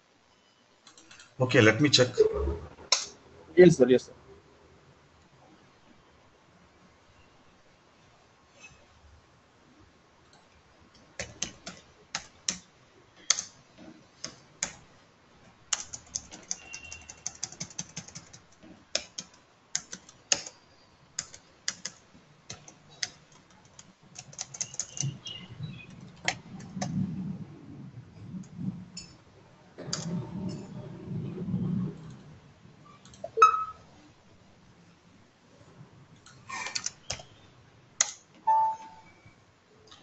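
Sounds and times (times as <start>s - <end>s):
computer keyboard typing: 10.9s - 14.9s, 15.7s - 20.6s, 21.2s - 26.9s, 36.6s - 37.4s.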